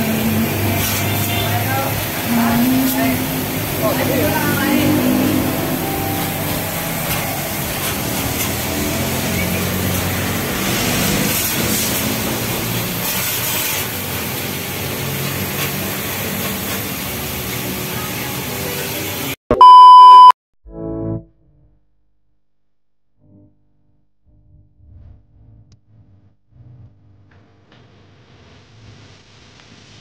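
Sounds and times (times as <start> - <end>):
low machine hum: 0.0 - 10.3
hose water jet hissing: 0.0 - 19.4
loud test-tone beep: 19.5 - 20.4.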